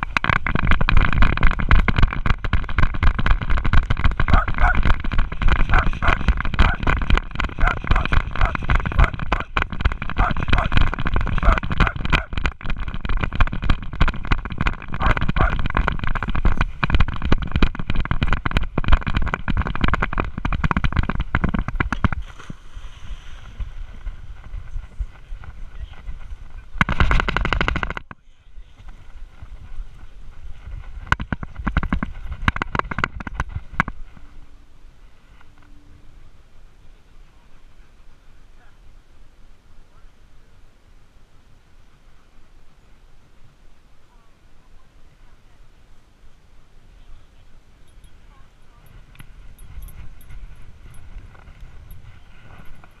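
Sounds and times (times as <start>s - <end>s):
camera knocking and rustling: 0.0s - 22.6s, 23.5s - 28.2s, 28.8s - 34.4s, 48.8s - 53.0s
wind buffeting microphone: 0.0s - 34.6s, 47.7s - 53.0s.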